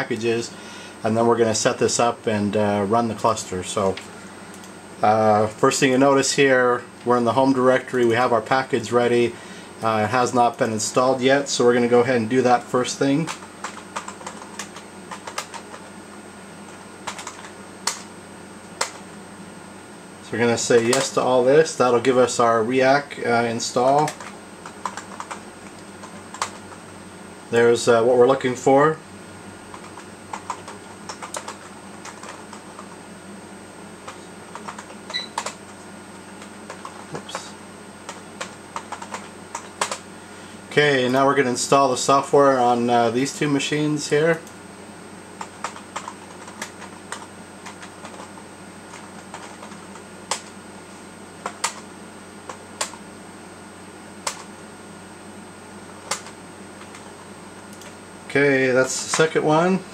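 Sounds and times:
hum with faint high whine: 0.0 - 59.9
keyboard typing: 13.2 - 15.9, 17.0 - 18.1, 23.8 - 26.7, 29.7 - 33.0, 34.0 - 35.8, 36.4 - 40.0, 45.4 - 50.6, 51.4 - 51.9, 54.2 - 54.5, 56.0 - 57.1.

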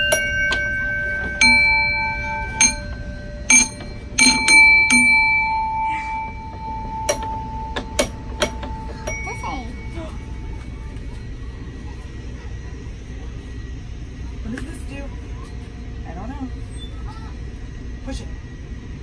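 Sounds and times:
metal chimes ringing: 0.0 - 11.6.

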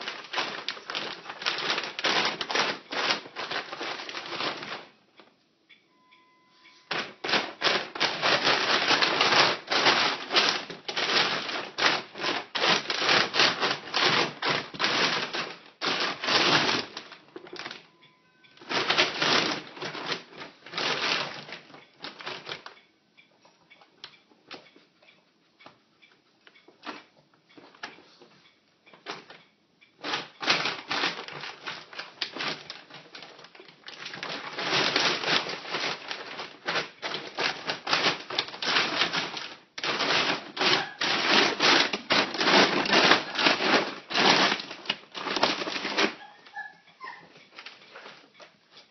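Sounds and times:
plastic bag crinkling: 0.0 - 5.0, 6.8 - 17.9, 18.5 - 22.7, 30.0 - 48.5.

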